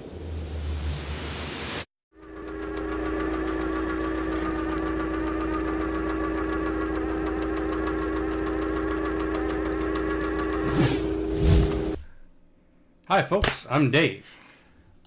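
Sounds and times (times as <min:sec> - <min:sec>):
fast mechanical rattle: 0:02.2 - 0:12.0
mechanical drone with deep hum: 0:02.2 - 0:12.4.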